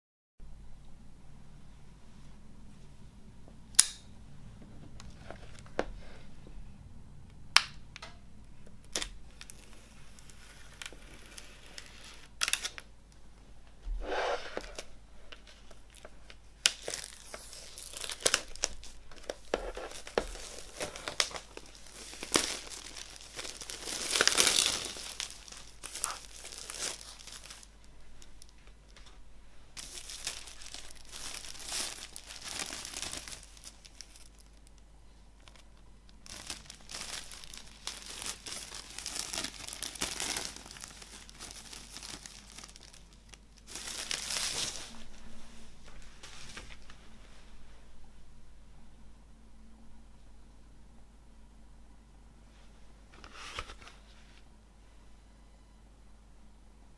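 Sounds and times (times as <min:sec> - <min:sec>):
plastic shrink wrap tearing: 0:08.8 - 0:12.9, 0:14.4 - 0:28.6, 0:29.8 - 0:34.8, 0:35.4 - 0:45.1.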